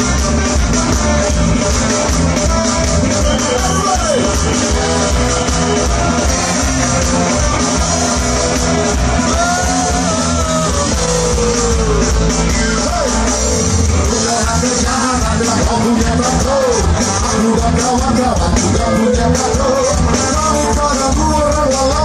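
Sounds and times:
ska band with horns playing live: 0.0 - 22.0
person singing: 6.2 - 22.0.

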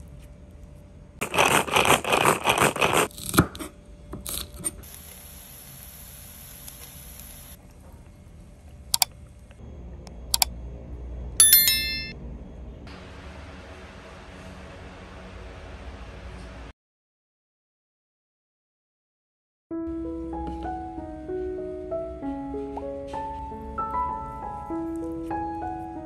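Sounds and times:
frying hiss: 4.8 - 7.7
sharp clicks: 10.3 - 10.5
short chime: 11.4 - 12.2.

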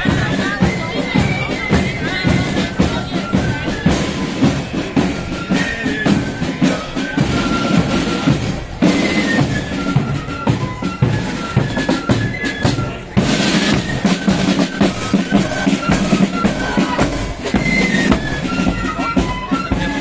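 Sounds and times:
flutes playing a tune: 0.0 - 20.0
snare and bass drums: 0.0 - 20.0.

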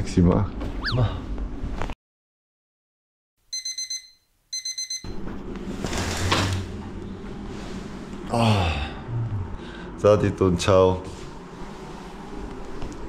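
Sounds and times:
electronic alarm beeping: 3.5 - 5.2
low room hum: 4.9 - 13.0.

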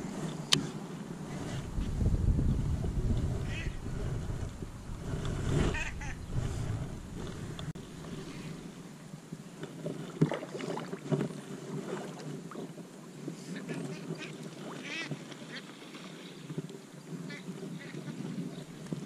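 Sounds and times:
ducks quacking: 3.4 - 3.8, 5.6 - 6.3, 13.6 - 15.6.

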